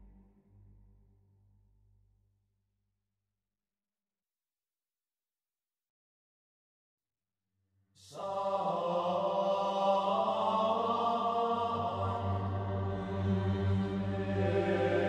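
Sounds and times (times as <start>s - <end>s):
chanted voices over low drone: 8.0s - 15.0s.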